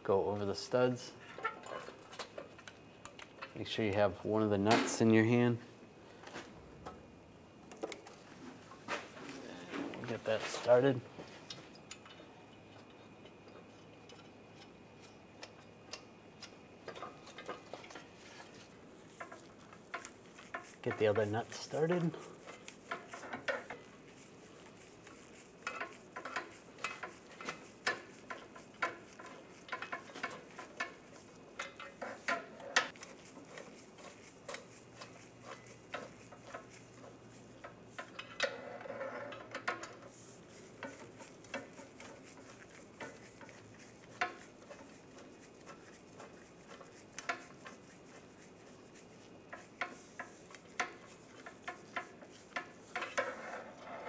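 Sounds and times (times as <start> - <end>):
metal scrape: 51.4 - 54.0.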